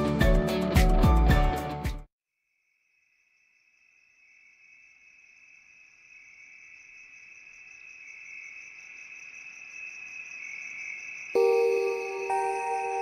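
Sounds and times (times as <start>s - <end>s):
crickets chirping: 2.6s - 13.0s.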